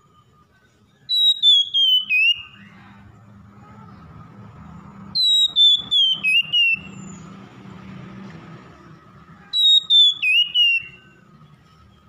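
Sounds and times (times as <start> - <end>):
bird singing whistled notes: 0.0 - 2.8, 5.2 - 7.4, 9.5 - 12.0.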